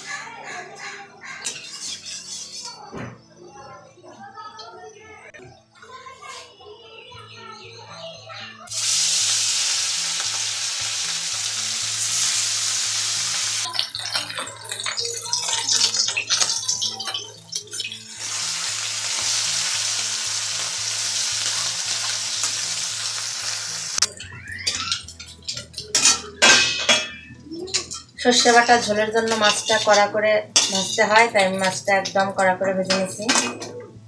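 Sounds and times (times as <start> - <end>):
clinks and scrapes: 1.4 - 2.9
metal spatula scraping and knocking: 1.4 - 3.2, 24.7 - 33.8
fish sizzling in hot oil: 8.7 - 26.1.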